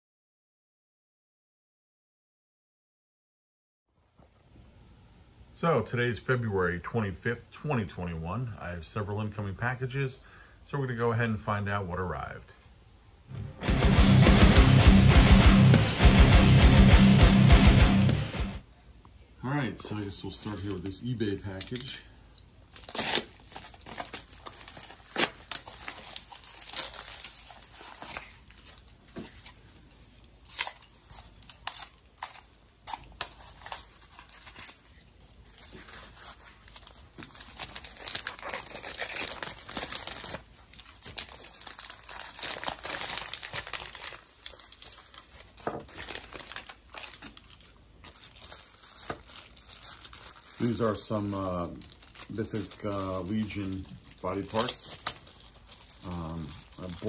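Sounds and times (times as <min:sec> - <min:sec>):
plastic mailer crinkling: 0:19.8 - 0:22.1, 0:22.7 - 0:57.0
paper tearing: 0:22.8 - 0:47.4, 0:48.1 - 0:57.0
sharp crackles: 0:35.5 - 0:57.0.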